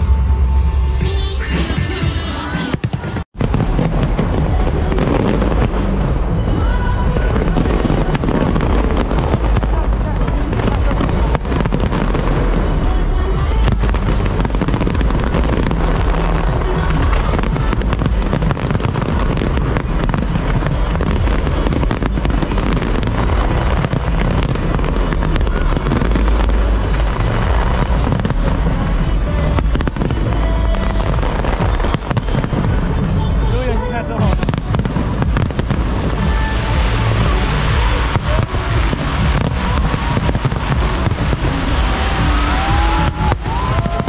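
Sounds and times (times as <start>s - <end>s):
fireworks bursting and crackling: 0.0s - 44.0s
music with heavy bass: 0.0s - 44.0s.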